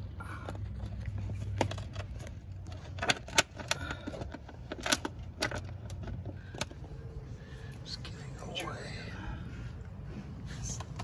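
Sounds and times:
clicks and knocks of car parts: 0:00.3 - 0:07.0.

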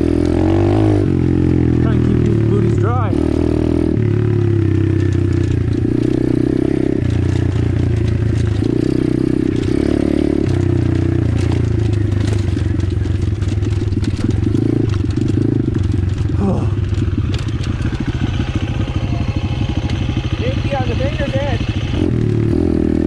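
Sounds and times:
motorcycle engine revving: 0:00.0 - 0:23.0
stones clattering and scraping: 0:04.8 - 0:06.4, 0:07.0 - 0:20.2.

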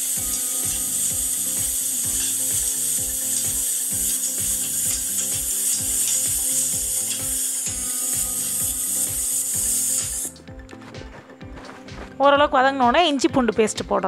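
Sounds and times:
onions sizzling in butter: 0:00.0 - 0:10.3
background music with steady beat: 0:00.0 - 0:14.0.

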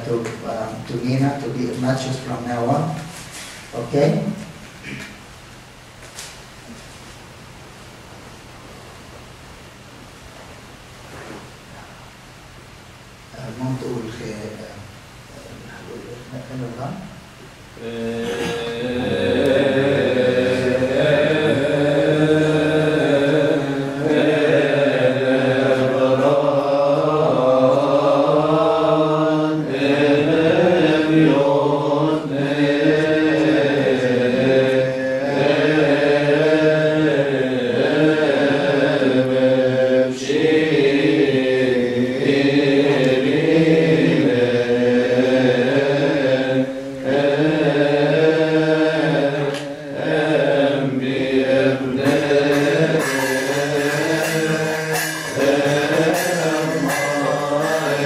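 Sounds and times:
men chanting a hymn: 0:00.0 - 0:05.1, 0:17.8 - 0:58.0.

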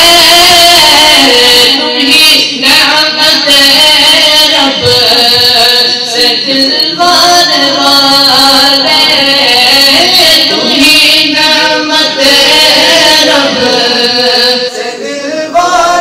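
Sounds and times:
men singing devotional chant: 0:00.0 - 0:16.0.

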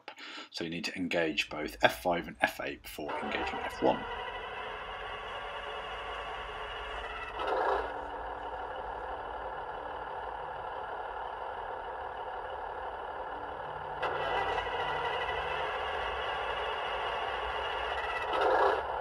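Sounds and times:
diesel engine sound effect: 0:01.1 - 0:19.0
short loud mechanical bursts: 0:14.0 - 0:19.0.

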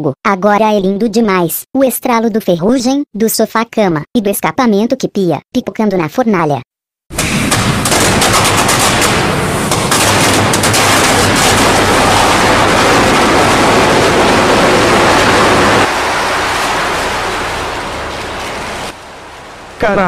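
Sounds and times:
furnace crackling roar: 0:07.1 - 0:20.0
low electrical hum: 0:07.2 - 0:20.0.

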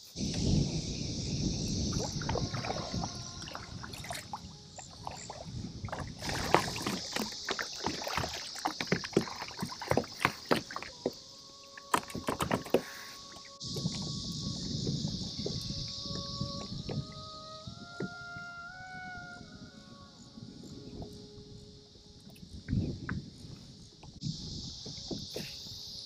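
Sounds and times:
water washing along hull: 0:00.0 - 0:18.2
paddle splashing in water: 0:01.9 - 0:14.1.

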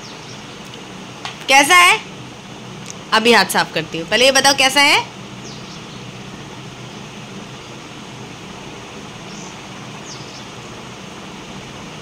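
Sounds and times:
room noise hiss: 0:00.0 - 0:12.0.

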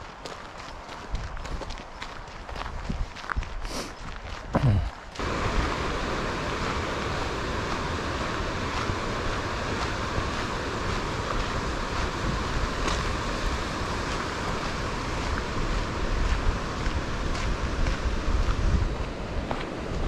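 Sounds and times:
wind buffeting microphone: 0:00.0 - 0:20.0
stream rushing: 0:04.6 - 0:20.0.

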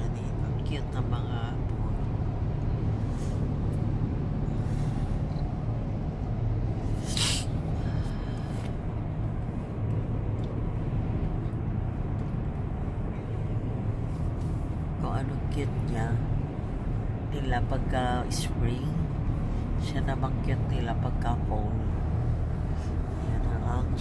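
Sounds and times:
car road noise: 0:00.0 - 0:24.0
short sharp hiss: 0:07.0 - 0:07.6.

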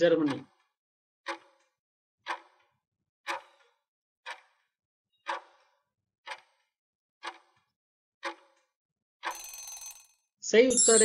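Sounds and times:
countdown timer ticking: 0:10.7 - 0:11.0.

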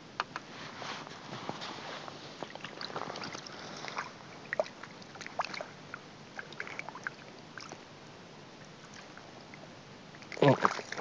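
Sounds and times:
water dripping and splashing: 0:10.2 - 0:11.0.

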